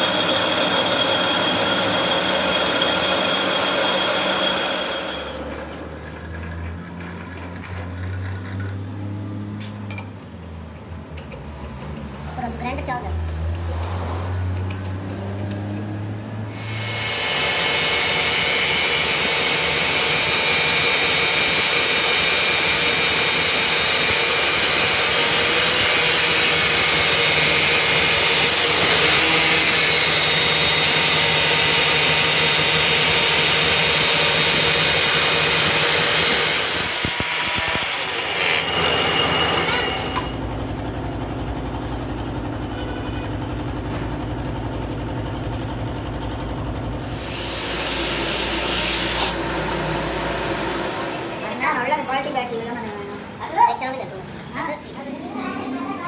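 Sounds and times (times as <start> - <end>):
lathe running with low hum: 0.0 - 6.6, 16.5 - 53.4
angle grinder grinding metal: 0.0 - 6.7, 14.9 - 40.5, 47.0 - 54.4.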